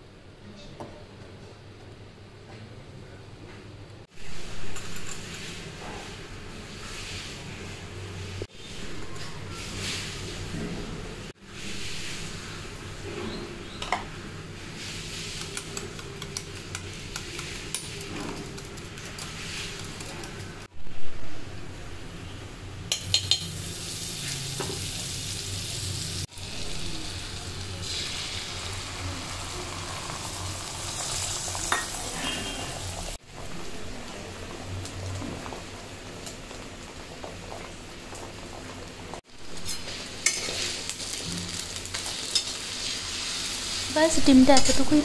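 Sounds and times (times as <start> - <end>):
egg sizzling in hot oil: 22.9 - 33.2, 34.8 - 45.0
metal spatula scraping a pan: 31.1 - 32.9, 39.6 - 40.9.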